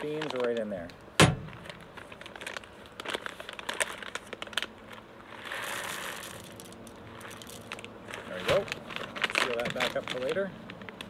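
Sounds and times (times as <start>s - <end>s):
foil bag crinkling: 0.0s - 11.0s
coffee beans pouring: 5.3s - 8.4s.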